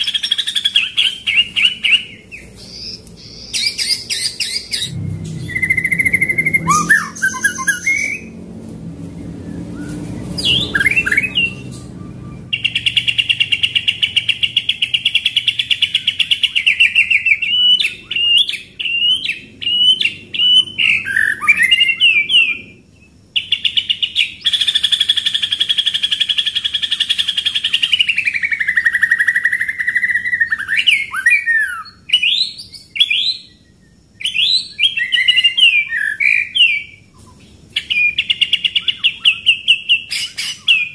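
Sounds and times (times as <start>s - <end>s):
sharp whistled bird notes: 0.0s - 8.4s, 9.4s - 22.7s
bird singing rolling trills: 0.0s - 40.9s.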